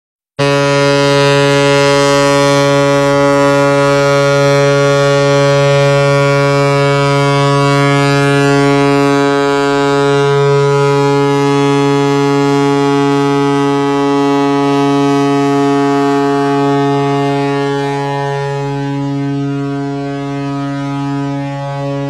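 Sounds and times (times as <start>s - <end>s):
ship's horn long deep blast: 0.4s - 22.0s.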